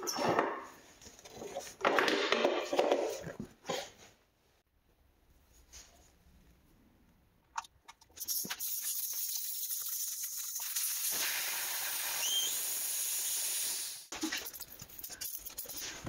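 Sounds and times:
air hissing through tire valve: 0:08.7 - 0:14.1.

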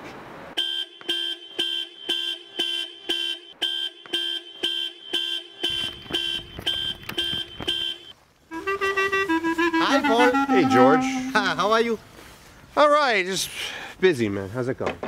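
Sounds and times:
car alarm horn blasts: 0:00.6 - 0:08.7, 0:09.5 - 0:11.5.

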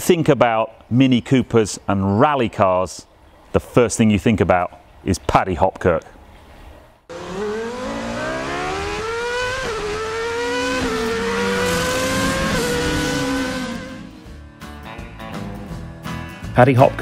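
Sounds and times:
car engine accelerating: 0:07.1 - 0:14.4.

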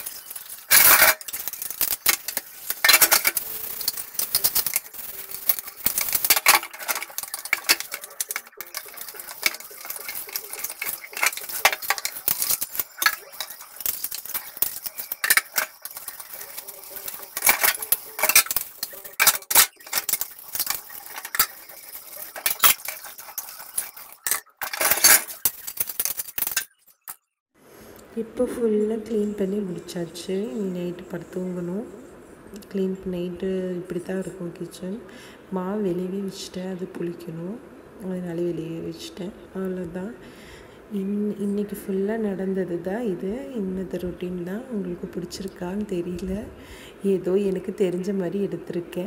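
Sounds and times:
tap water running: 0:00.0 - 0:26.4
dishes clattering: 0:00.0 - 0:26.8.

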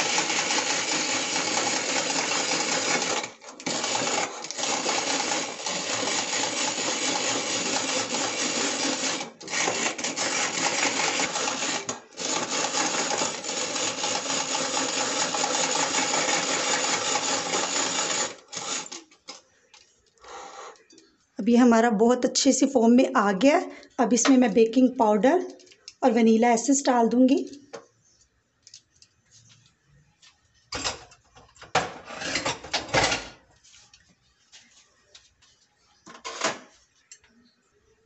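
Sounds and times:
egg beater whirring and rattling: 0:00.0 - 0:19.1.

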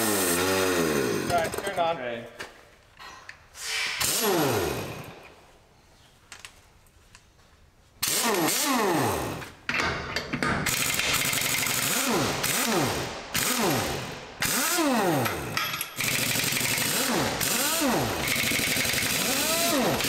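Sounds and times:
pneumatic impact wrench bursts: 0:00.0 - 0:01.7, 0:03.5 - 0:05.3, 0:08.0 - 0:09.6, 0:10.6 - 0:20.0.

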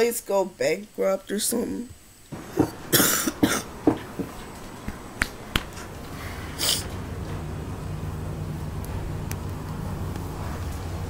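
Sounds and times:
person coughing: 0:02.6 - 0:03.8
short breathy hiss: 0:06.2 - 0:06.9.

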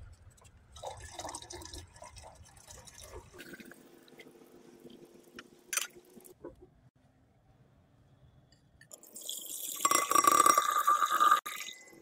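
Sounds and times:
liquid pouring and splashing: 0:00.7 - 0:04.0.

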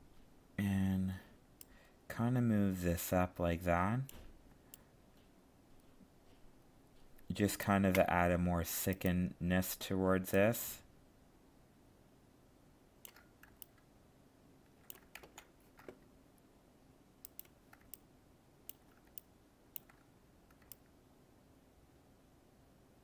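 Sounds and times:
faint steady hum: 0:00.0 - 0:23.0
computer mouse clicking: 0:13.0 - 0:13.9, 0:14.7 - 0:16.0, 0:17.2 - 0:18.1, 0:18.7 - 0:20.9.

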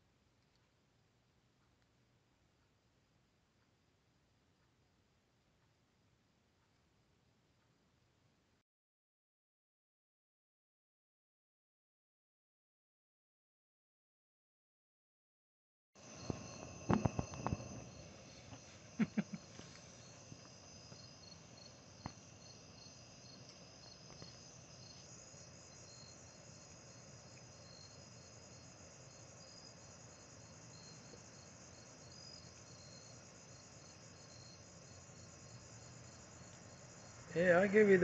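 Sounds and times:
crickets and insects chirring: 0:16.0 - 0:38.0
insect chirping in quick pulse: 0:16.0 - 0:38.0.

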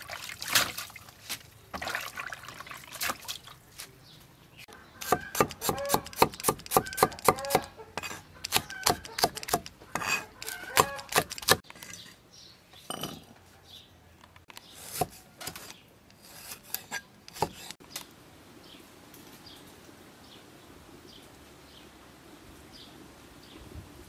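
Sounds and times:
cleaver chopping on wooden board: 0:05.0 - 0:11.6
knife cutting limes: 0:05.0 - 0:11.6, 0:14.8 - 0:17.8.

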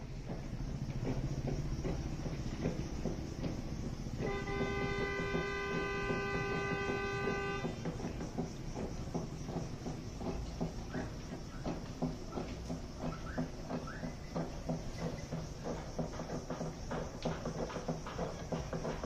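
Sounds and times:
outdoor background noise: 0:00.0 - 0:19.0
faint knocks: 0:00.2 - 0:19.0
vehicle horn blast: 0:04.2 - 0:07.9.

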